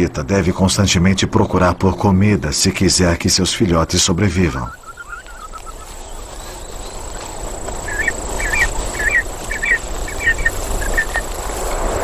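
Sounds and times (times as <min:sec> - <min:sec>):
outdoor ambience hiss: 0:00.0 - 0:12.0
high chirping animal calls: 0:04.3 - 0:11.4.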